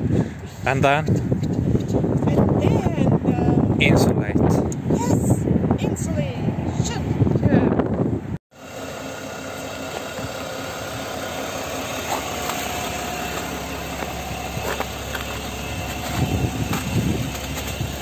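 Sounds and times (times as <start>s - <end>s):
van engine idling: 8.6s - 18.0s
low bumps: 11.3s - 18.0s.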